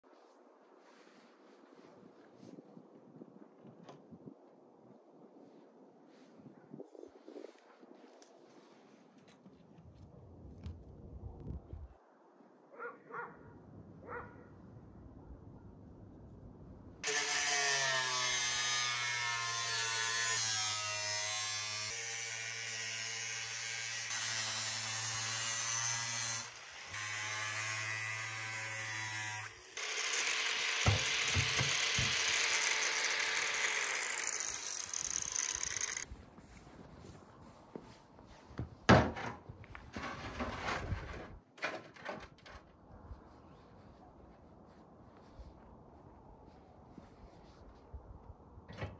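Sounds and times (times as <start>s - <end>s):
power saw cutting wood: 17.0s - 36.0s.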